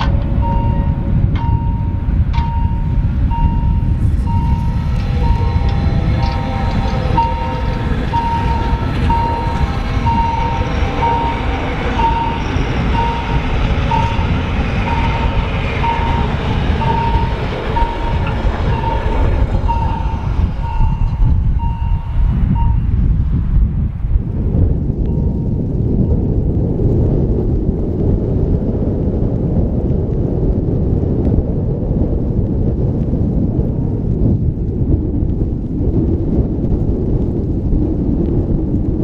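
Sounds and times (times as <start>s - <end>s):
train wheels rumbling on rails: 0.0s - 39.0s
repeating single-pitched beep: 0.4s - 4.6s.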